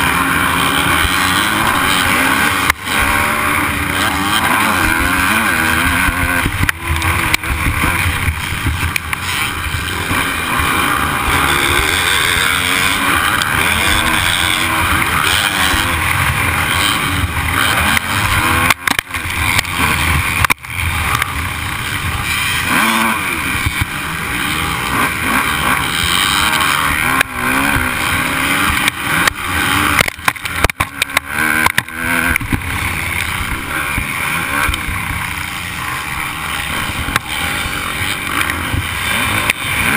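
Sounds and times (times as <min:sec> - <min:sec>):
dirt bike engine revving: 0:00.0 - 0:39.9.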